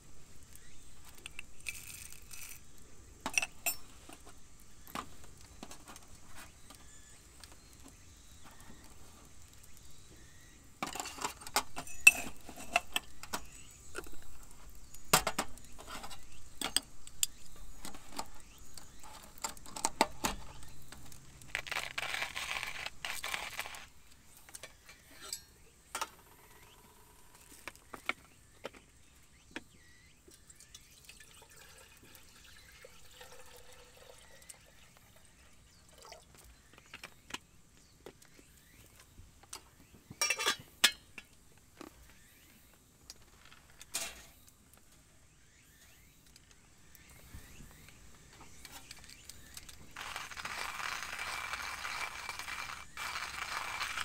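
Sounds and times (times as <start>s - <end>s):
coffee beans rattling: 1.1s - 6.6s, 21.4s - 24.0s, 31.0s - 34.5s, 49.4s - 54.0s
metal scoop clinking on glass jar: 3.3s - 3.9s, 11.8s - 13.0s, 40.2s - 41.0s.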